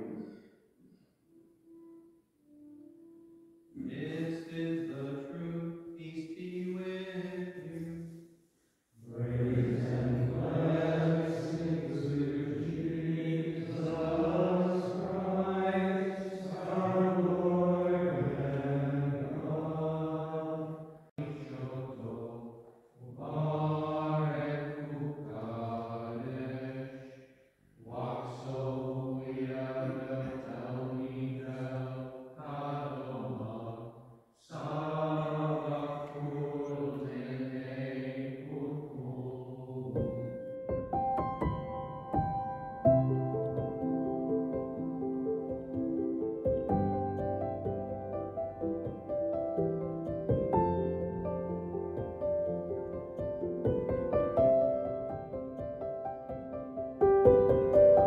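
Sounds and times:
monks chanting: 3.8s - 8.1s, 9.0s - 27.2s, 27.8s - 40.3s.

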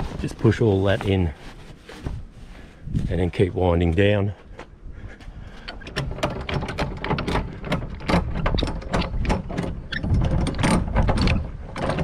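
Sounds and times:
hand crank clicking and rattling: 5.6s - 12.0s.

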